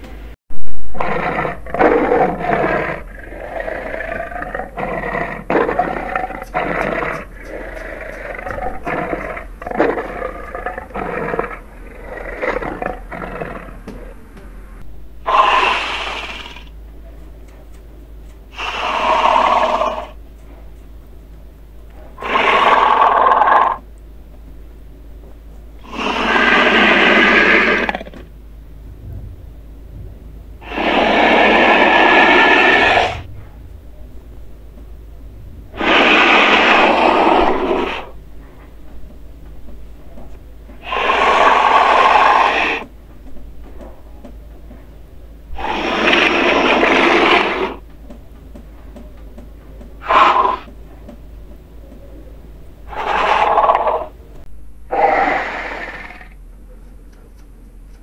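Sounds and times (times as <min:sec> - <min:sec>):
harsh breathy hissing calls: 0:01.0 - 0:13.8, 0:15.2 - 0:16.7, 0:18.5 - 0:20.2, 0:22.2 - 0:23.8, 0:25.8 - 0:28.2, 0:30.6 - 0:33.3, 0:35.7 - 0:38.2, 0:40.8 - 0:42.9, 0:45.5 - 0:47.8, 0:50.0 - 0:50.7, 0:52.8 - 0:54.2, 0:54.9 - 0:56.4.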